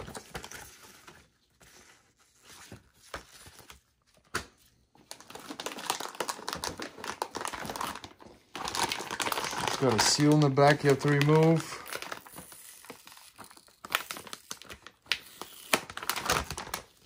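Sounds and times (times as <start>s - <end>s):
anti-static bag crinkling: 5.1s - 17.0s
paper and cardboard rustling: 8.6s - 13.6s.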